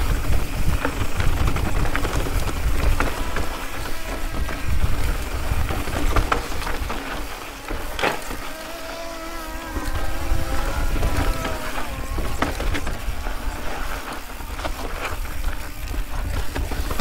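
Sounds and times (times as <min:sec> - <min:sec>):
bike clattering over rocks: 0:00.0 - 0:17.0
wind rumbling on microphone: 0:00.0 - 0:17.0
wavering pitched hum: 0:08.2 - 0:15.2.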